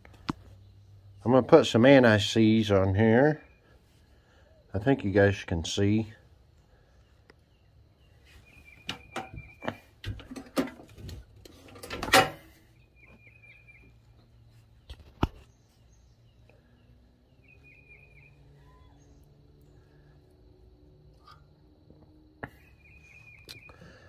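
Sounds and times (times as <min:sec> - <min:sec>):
small bird chirping: 0:06.6 - 0:10.0, 0:12.7 - 0:20.2, 0:22.3 - 0:24.0.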